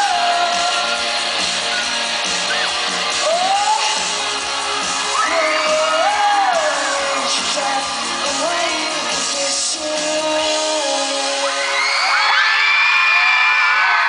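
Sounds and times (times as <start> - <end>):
person singing: 0.0 - 12.1
live pop-rock band: 0.0 - 14.0
crowd shouting: 1.6 - 8.1.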